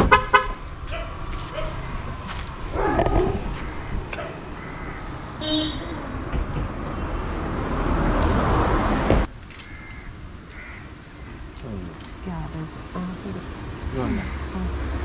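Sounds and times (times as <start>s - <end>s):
quiet street sound: 0.0s - 15.0s
road traffic noise: 0.0s - 15.0s.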